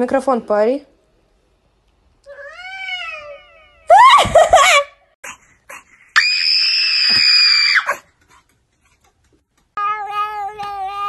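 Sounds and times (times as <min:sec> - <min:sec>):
dog high-pitched scream: 0:06.2 - 0:08.0.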